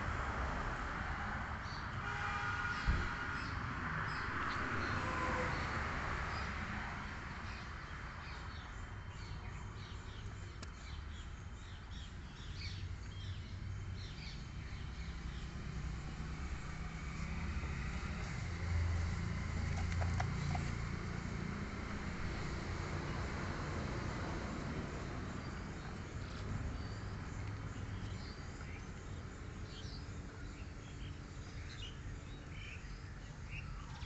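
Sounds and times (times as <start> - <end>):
small birds chirping: 7.4 - 17.4, 25.3 - 34.0.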